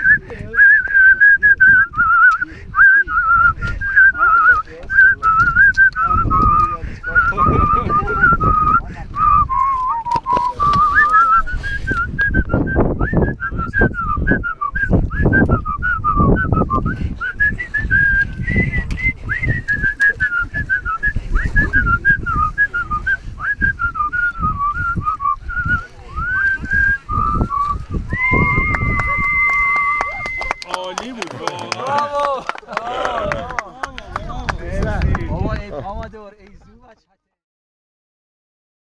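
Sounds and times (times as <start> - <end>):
person whistling a melody: 0.0 - 30.8.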